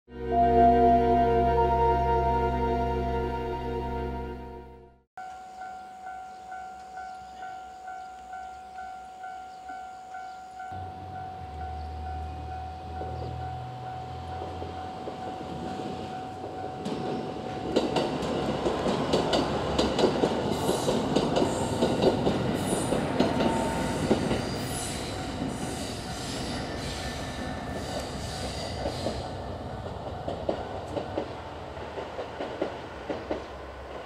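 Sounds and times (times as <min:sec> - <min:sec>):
diesel train passing: 0:00.1 - 0:05.0, 0:05.6 - 0:34.0
wheels clacking over rail joints: 0:14.3 - 0:26.9, 0:28.8 - 0:34.0.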